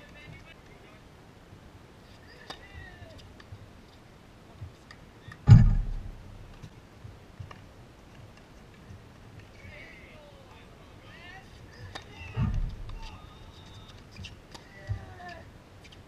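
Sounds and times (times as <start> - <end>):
tennis balls hit and bounced: 2.3 - 3.6, 11.5 - 16.0
loud low thump: 5.4 - 6.4, 12.3 - 13.0.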